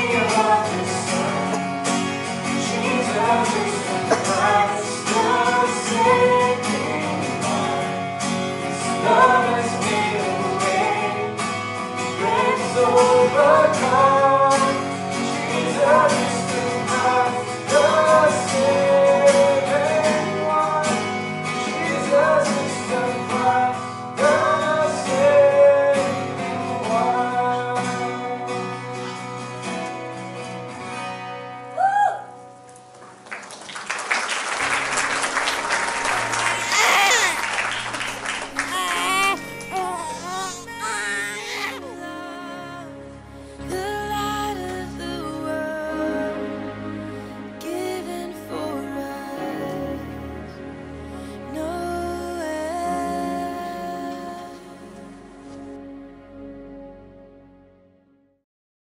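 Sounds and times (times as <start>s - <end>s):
man and woman singing: 0.0s - 1.6s, 2.6s - 8.0s, 8.7s - 11.4s, 12.1s - 20.8s, 38.5s - 43.0s, 43.7s - 46.5s, 47.6s - 50.4s, 51.3s - 55.0s
acoustic guitars strumming: 0.0s - 31.8s, 34.6s - 55.4s
audience applause: 32.9s - 41.8s.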